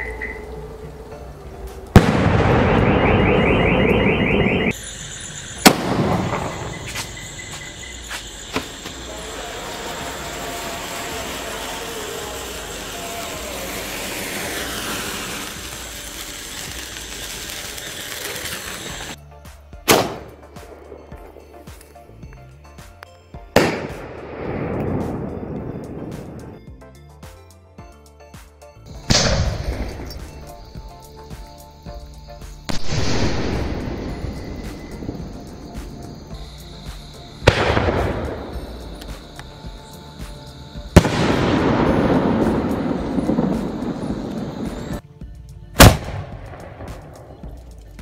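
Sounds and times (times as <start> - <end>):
firework crackling: 0.0 - 19.2, 19.8 - 22.0, 23.6 - 26.7, 28.9 - 45.0, 45.7 - 48.0
firework hissing: 0.0 - 19.2, 28.9 - 45.0
firework bangs: 1.8 - 19.2, 19.8 - 21.4, 23.6 - 26.6, 29.0 - 31.5, 32.6 - 45.0, 45.8 - 47.7.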